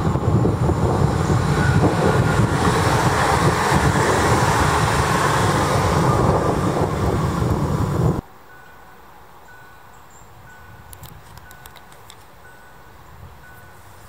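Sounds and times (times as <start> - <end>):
electric train passing at speed: 0.0 - 9.8.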